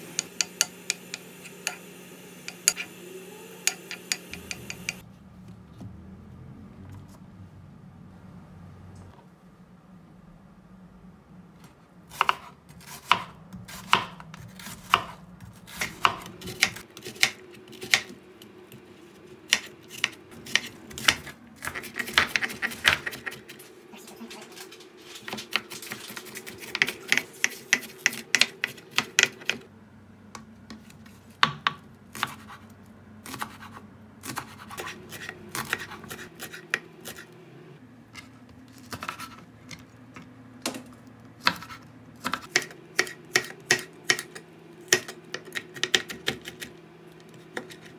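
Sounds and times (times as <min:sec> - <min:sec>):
knife chopping on plastic board: 0:12.2 - 0:18.1, 0:41.4 - 0:46.7.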